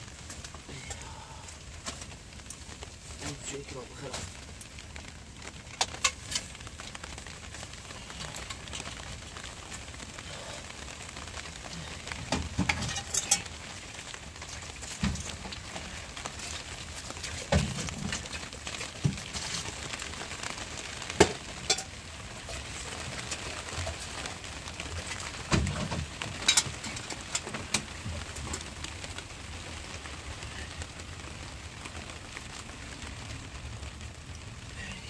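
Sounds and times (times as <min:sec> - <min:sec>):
rain hiss: 0:00.0 - 0:35.0
sharp cracks and knocks: 0:04.0 - 0:10.0, 0:11.4 - 0:22.0, 0:23.2 - 0:29.2.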